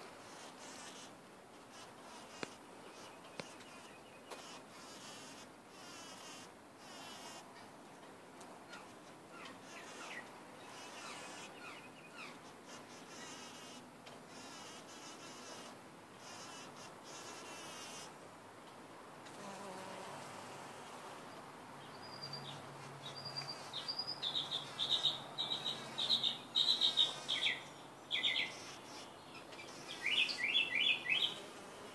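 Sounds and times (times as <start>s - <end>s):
bumble bee wings buzzing: 0.2s - 1.1s, 1.7s - 7.4s, 9.6s - 11.6s, 12.6s - 18.1s, 19.3s - 20.9s, 23.6s - 27.7s, 28.3s - 30.3s, 31.1s - 31.9s.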